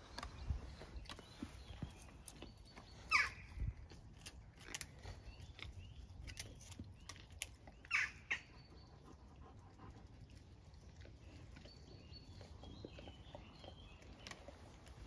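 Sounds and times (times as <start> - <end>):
puppy squeaking: 3.1 - 3.5.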